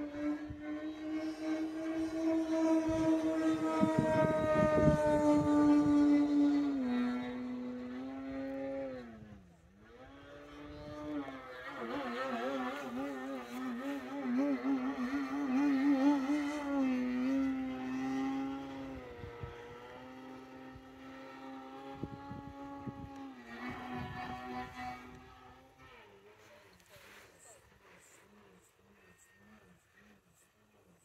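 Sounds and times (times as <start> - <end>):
model plane propeller drone: 0.0 - 31.0.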